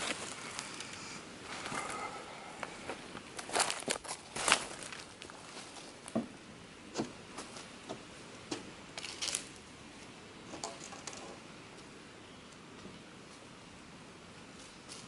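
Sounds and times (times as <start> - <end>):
faint steady hiss: 0.0 - 15.0
footsteps on grass and leaves: 2.6 - 6.1.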